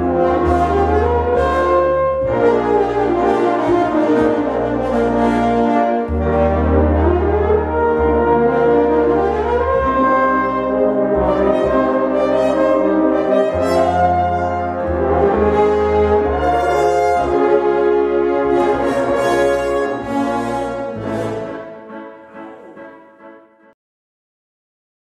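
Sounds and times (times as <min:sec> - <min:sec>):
french horn ensemble playing chords: 0:00.0 - 0:23.7.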